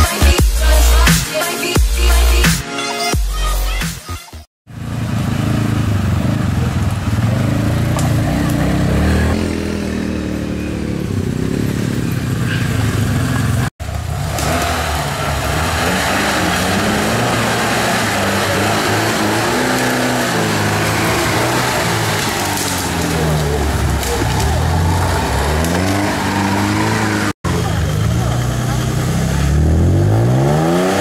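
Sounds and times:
off-road vehicle engine running: 0:04.7 - 0:31.0
quad bike engine running: 0:04.7 - 0:31.0.

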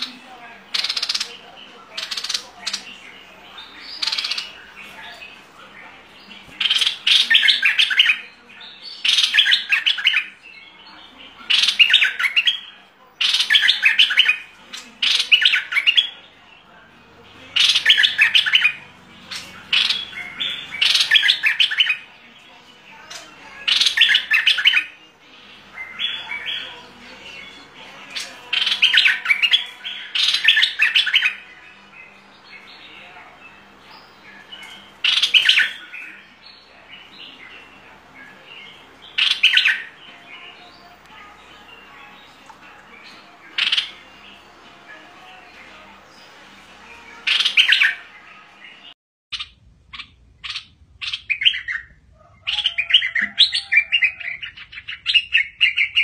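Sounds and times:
bulbul singing: 0:00.0 - 0:56.0.

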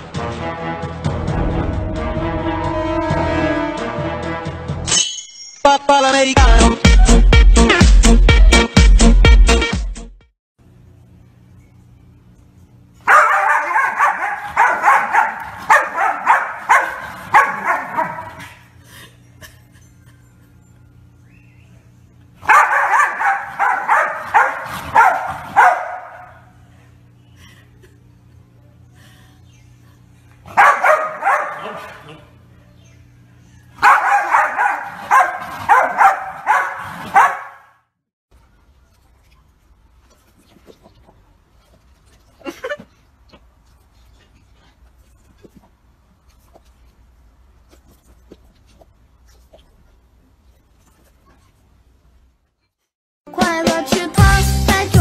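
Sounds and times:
dog barking and whining: 0:13.0 - 0:18.7, 0:22.4 - 0:26.5, 0:30.5 - 0:32.4, 0:33.7 - 0:37.7.

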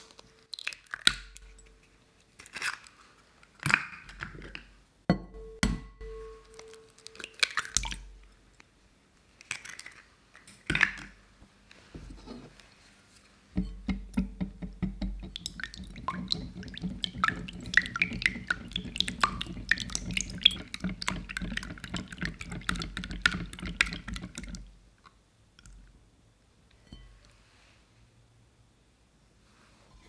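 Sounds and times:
whisk clicking against glass bowl: 0:13.6 - 0:24.6
liquid egg sloshing: 0:14.9 - 0:24.7.

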